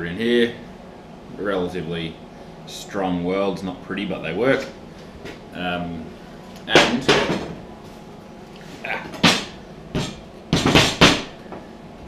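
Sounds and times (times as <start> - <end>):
metal knocks on steel workbench: 9.2 - 11.4.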